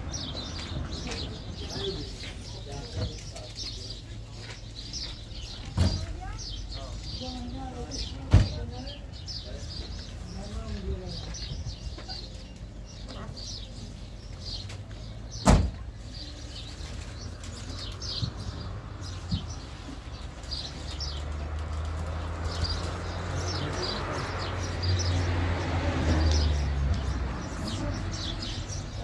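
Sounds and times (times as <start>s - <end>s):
small birds chirping: 0.0s - 29.0s
vehicle engine rumble: 0.0s - 29.0s
car door slamming: 15.4s - 15.8s.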